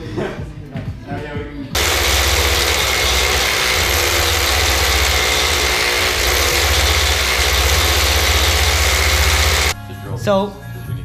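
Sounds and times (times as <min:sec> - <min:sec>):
hammer drill boring into concrete: 0:01.8 - 0:09.8.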